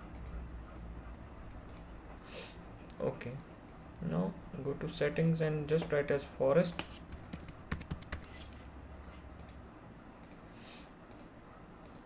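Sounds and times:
computer keyboard typing: 7.0 - 8.4.

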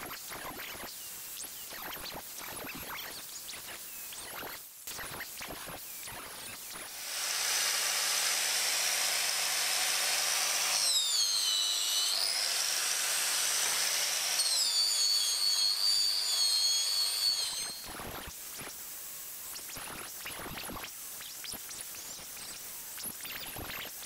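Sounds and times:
angle grinder polishing steel: 6.9 - 17.9.

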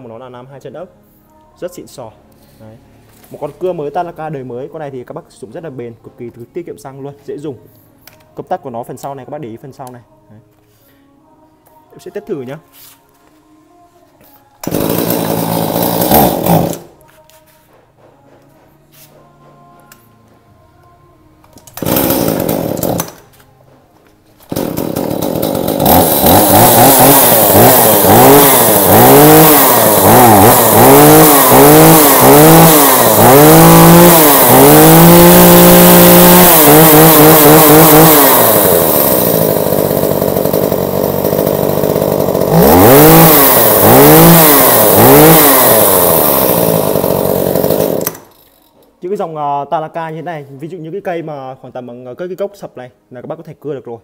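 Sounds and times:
chainsaw engine revving: 14.6 - 17.0, 21.7 - 23.2, 24.5 - 48.7.

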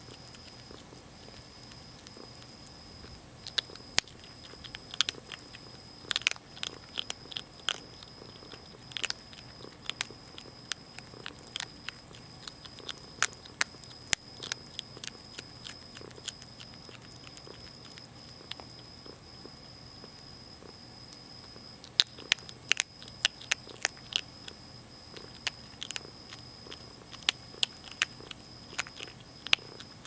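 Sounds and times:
animal crunching dry kibble: 0.0 - 30.0.

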